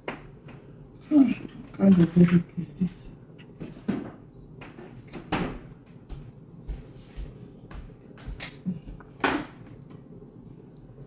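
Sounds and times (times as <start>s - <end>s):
footsteps on wooden floor: 5.6s - 9.2s.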